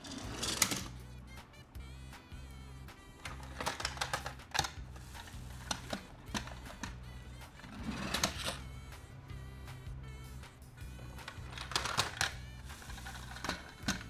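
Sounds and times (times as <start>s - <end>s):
toy truck scraping and rolling: 0.0s - 1.0s, 3.2s - 8.7s, 11.2s - 14.0s
toy trucks clicking and clattering: 0.0s - 1.0s, 3.2s - 7.0s, 7.6s - 8.7s, 11.2s - 14.0s
background music: 0.0s - 14.0s.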